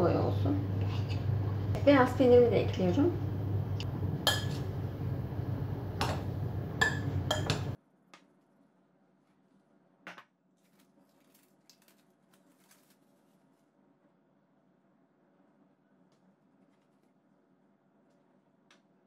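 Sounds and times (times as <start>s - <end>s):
fork clinking against glass bowl: 4.2s - 4.6s, 6.8s - 7.7s.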